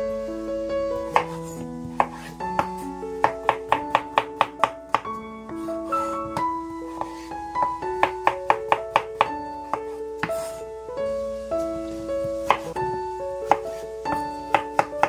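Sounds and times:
background piano music: 0:00.0 - 0:15.0
knife chopping on wooden board: 0:13.5 - 0:15.0.

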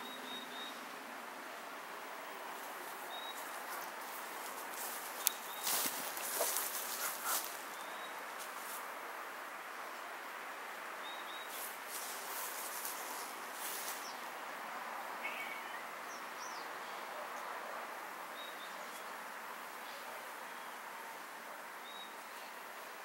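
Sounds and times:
steady hiss: 0:00.0 - 0:16.8.

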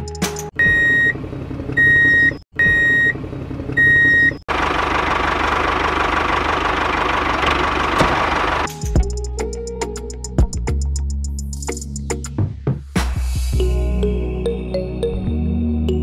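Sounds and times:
tractor engine running: 0:00.7 - 0:09.3.

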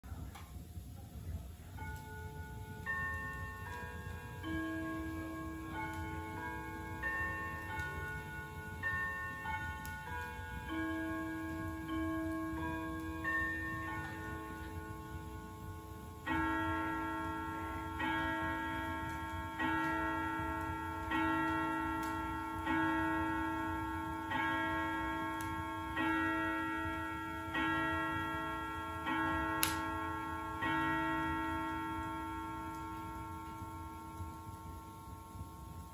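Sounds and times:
mantel clock striking: 0:01.8 - 0:35.4.

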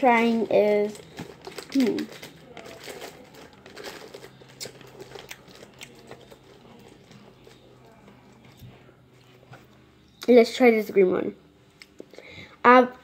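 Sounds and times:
plastic wrappers crinkling: 0:00.0 - 0:09.7.

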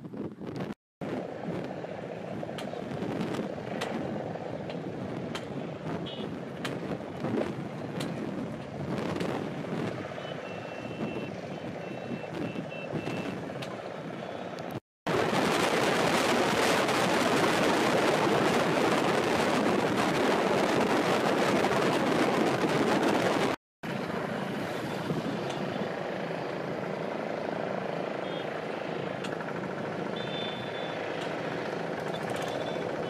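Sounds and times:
wind buffeting microphone: 0:00.0 - 0:10.2, 0:15.1 - 0:23.6.

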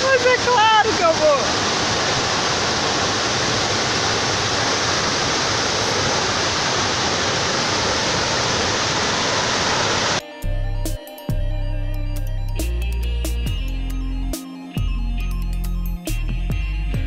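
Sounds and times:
waterfall roaring: 0:00.0 - 0:10.2.

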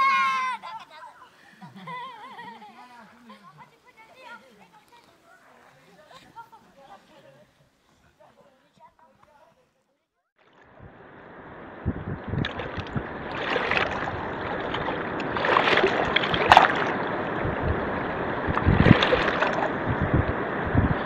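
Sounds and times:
wind buffeting microphone: 0:10.7 - 0:21.0
river rushing over boulders: 0:12.4 - 0:20.7.

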